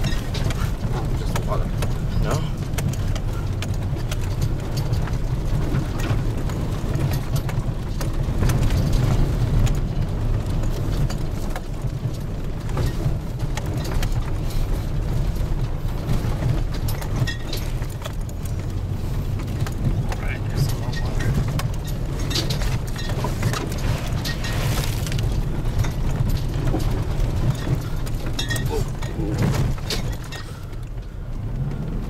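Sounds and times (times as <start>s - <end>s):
knocks and rattles: 0.0s - 32.0s
vehicle engine rumble: 0.0s - 32.0s.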